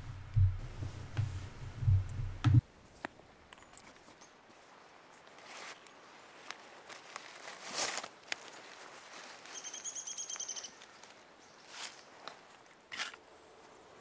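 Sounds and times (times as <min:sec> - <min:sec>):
low pulsing rumble: 0:00.0 - 0:02.6.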